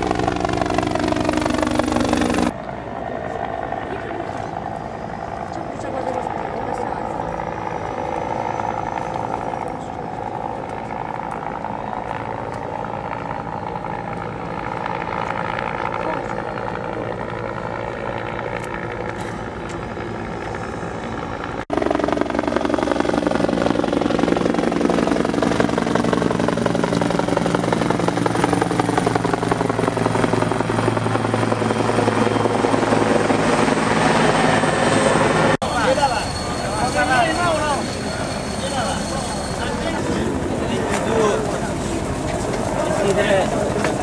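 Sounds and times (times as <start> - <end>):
helicopter rotor and engine drone: 0.0 - 44.0.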